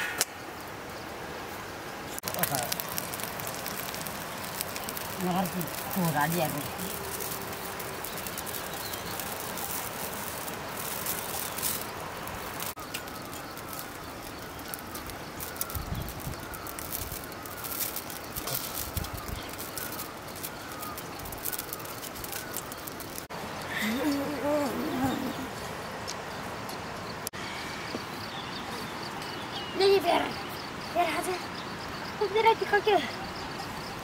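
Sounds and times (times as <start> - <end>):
wood fire crackling: 0.2 - 27.3
pan simmering: 1.2 - 25.2
small bird chirping: 2.2 - 23.3.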